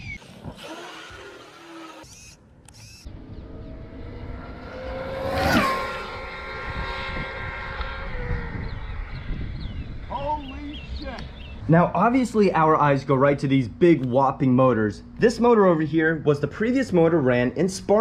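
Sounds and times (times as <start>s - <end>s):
electric motor whining: 0.0s - 10.0s
wind rush: 3.3s - 11.7s.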